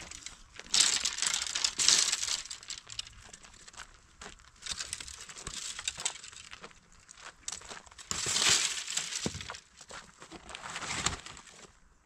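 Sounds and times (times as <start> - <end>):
twigs snapping: 0.0 - 6.6, 7.4 - 9.6
dry branches rustling and crackling: 0.0 - 11.9.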